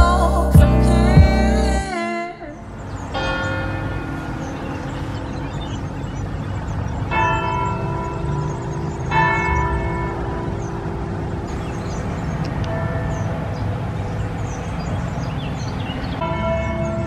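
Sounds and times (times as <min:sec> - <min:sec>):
steady low rumble: 0:00.0 - 0:01.9
church bell ringing: 0:03.0 - 0:17.0.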